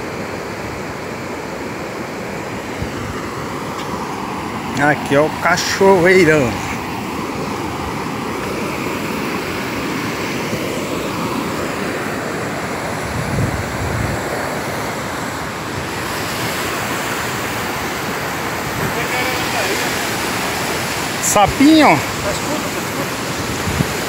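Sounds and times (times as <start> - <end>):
river rapids roaring: 0.0 - 24.0
wind rumbling on microphone: 2.7 - 5.4, 12.2 - 20.8, 21.5 - 24.0.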